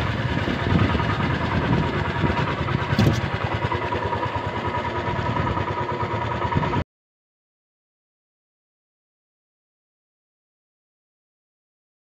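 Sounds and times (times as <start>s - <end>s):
boat engine running: 0.0s - 6.8s.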